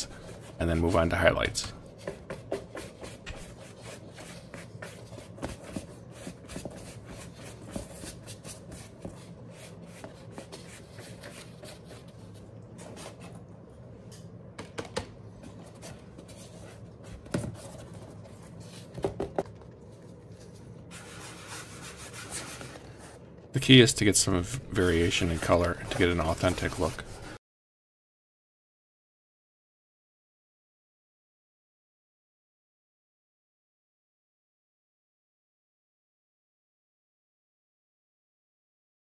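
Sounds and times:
scratchy brush strokes: 0:02.6 - 0:13.4, 0:20.0 - 0:23.2, 0:24.3 - 0:27.4.

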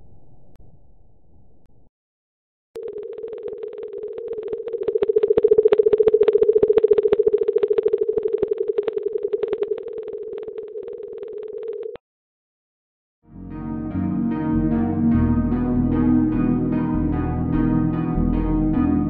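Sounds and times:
pulsing underwater hum: 0:02.8 - 0:12.0.

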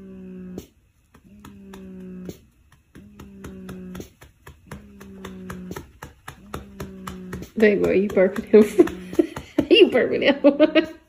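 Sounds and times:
man humming low note: 0:00.0 - 0:00.7, 0:01.3 - 0:04.1
patting on baby's back: 0:00.4 - 0:10.9.

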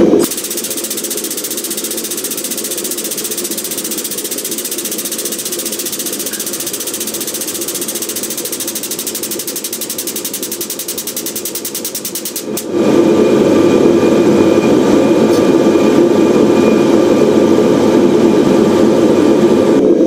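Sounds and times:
air pump chattering: 0:00.2 - 0:12.8.

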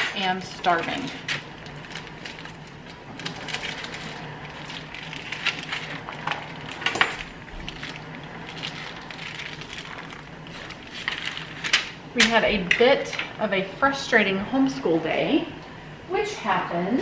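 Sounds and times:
low steady hum: 0:00.0 - 0:17.0
plastic packaging crinkling and tearing: 0:00.2 - 0:12.0.

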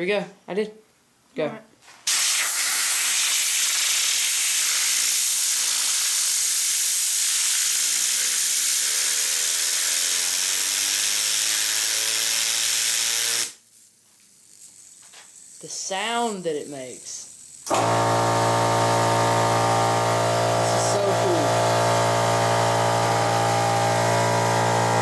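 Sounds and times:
compressed air hissing: 0:02.0 - 0:25.0
fidget spinner whirring: 0:04.9 - 0:17.7, 0:18.6 - 0:25.0.

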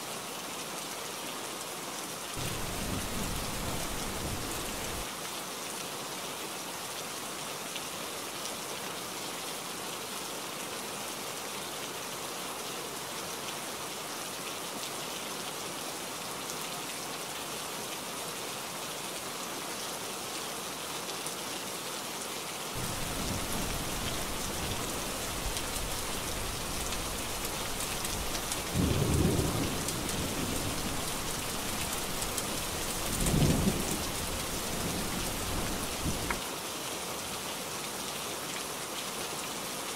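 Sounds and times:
heavy rain: 0:00.1 - 0:39.9
thunder rumbling: 0:02.4 - 0:05.0, 0:22.8 - 0:36.4.

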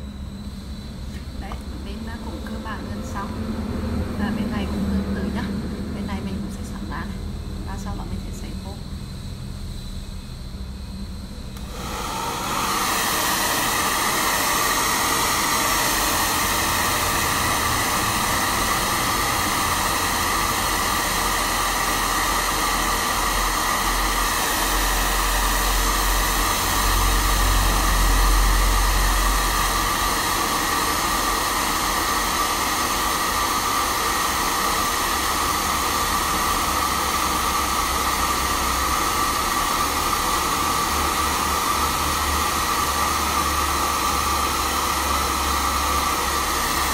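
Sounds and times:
hair dryer blowing: 0:00.0 - 0:08.5, 0:11.4 - 0:46.9.

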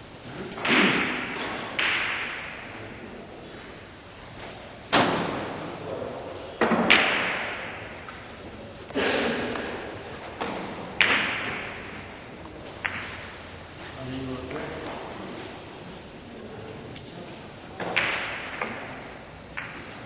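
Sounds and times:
billiard balls clacking: 0:00.5 - 0:02.7, 0:06.6 - 0:13.4, 0:17.8 - 0:20.0.

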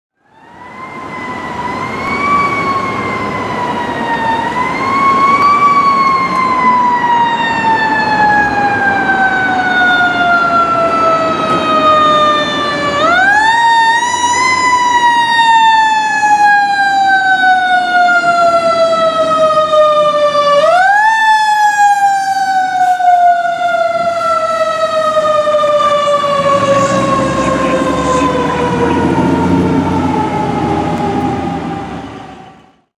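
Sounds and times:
fire engine siren wailing: 0:00.2 - 0:32.9
truck engine rumble: 0:22.6 - 0:32.8.

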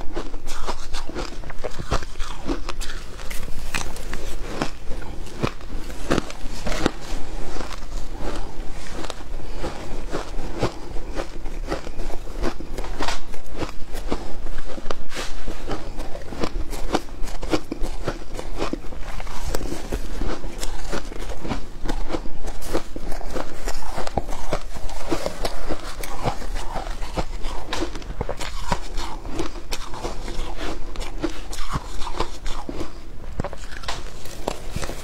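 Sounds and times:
crunching shaved ice: 0:00.0 - 0:35.0.

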